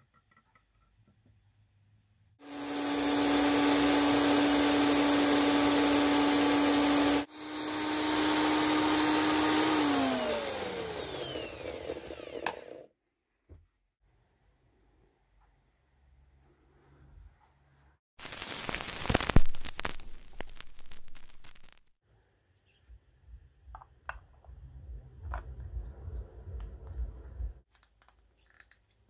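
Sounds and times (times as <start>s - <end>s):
drill press motor running: 2.4s - 12.9s.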